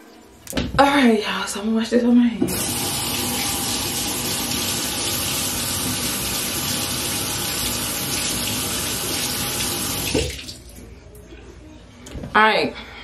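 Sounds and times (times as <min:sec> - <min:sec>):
tap water splashing over hands: 0:10.0 - 0:10.6.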